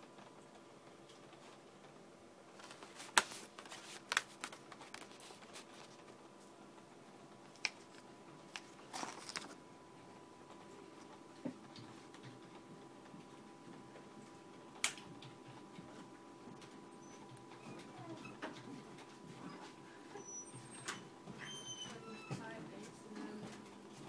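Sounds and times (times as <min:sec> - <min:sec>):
faint steady hum: 0:00.0 - 0:24.0
paper rustle: 0:02.5 - 0:06.6, 0:07.4 - 0:09.6
light paper clicks and taps: 0:02.6 - 0:06.0.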